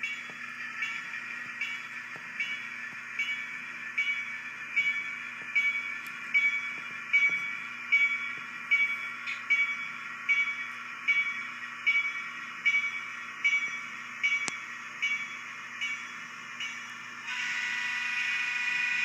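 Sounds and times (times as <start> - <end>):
model diesel engine sound: 0.0 - 19.0.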